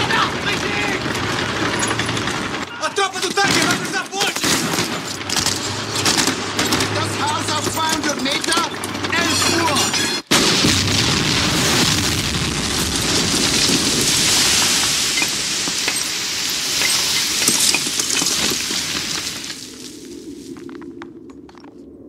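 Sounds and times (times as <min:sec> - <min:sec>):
debris raining down: 0:00.0 - 0:20.8
cannon blast and explosion: 0:10.3 - 0:17.7
sharp debris ticks: 0:11.7 - 0:21.5.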